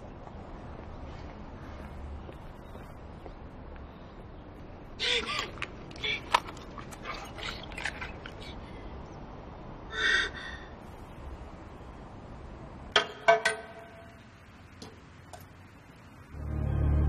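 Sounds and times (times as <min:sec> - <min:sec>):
background music: 0:16.3 - 0:17.0.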